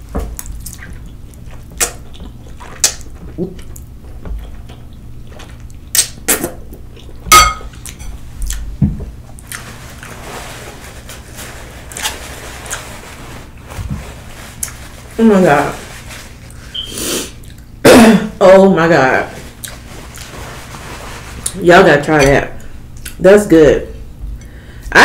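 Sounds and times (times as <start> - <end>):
slurping and chewing noodles: 0.4 - 4.8.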